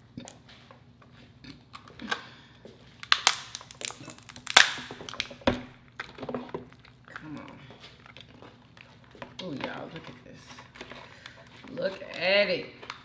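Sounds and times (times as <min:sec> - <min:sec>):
lobster shell cracking: 0:03.0 - 0:09.5.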